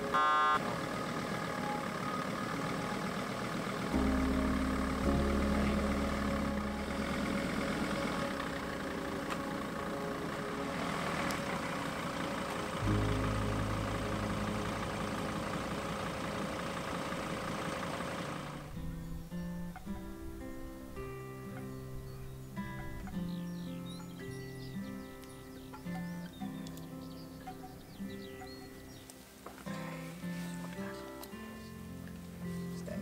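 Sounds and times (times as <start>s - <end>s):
van engine running: 0.0s - 33.0s
deep low rumble: 4.0s - 9.0s.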